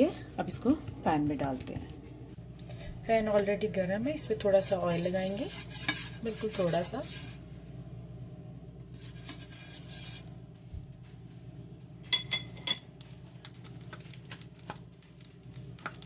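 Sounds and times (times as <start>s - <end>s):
oil spread across frying pan: 4.5s - 7.5s, 8.9s - 10.4s.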